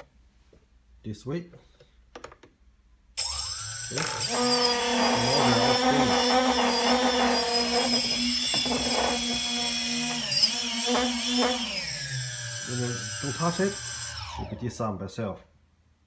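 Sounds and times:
electric motor whine: 3.2s - 14.6s.

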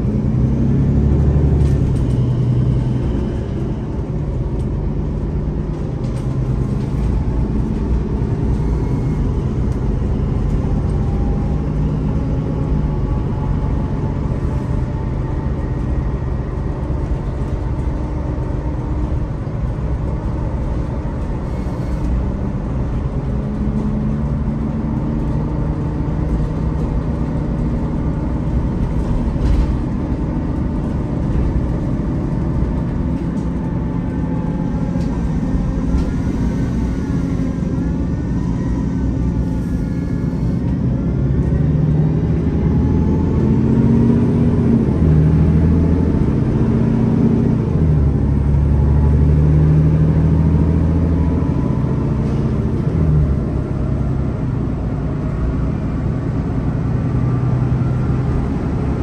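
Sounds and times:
bus engine drone: 0.0s - 59.0s
gearbox whine: 1.0s - 4.6s, 5.2s - 16.7s, 17.3s - 24.4s, 31.2s - 41.5s.

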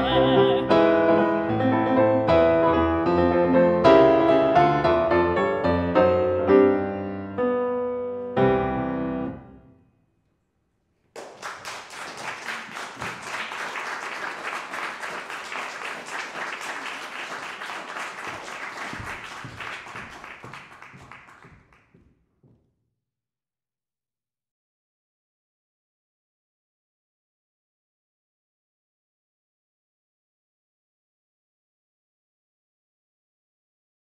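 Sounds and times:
piano chords: 0.0s - 9.8s
audience applauding: 11.1s - 22.0s.

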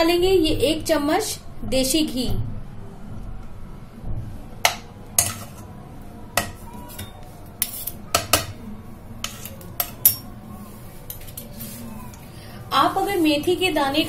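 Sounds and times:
spoon clinking against a pan: 4.7s - 5.6s, 9.2s - 10.3s.

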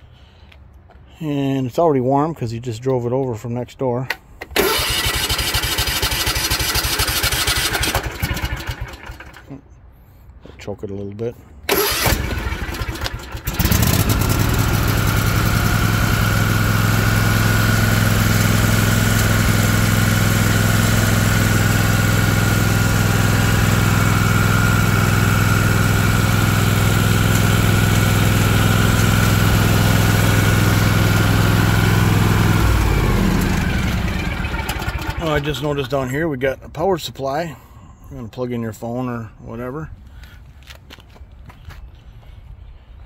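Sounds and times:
lawn tractor engine running: 4.4s - 9.6s, 11.7s - 35.9s.

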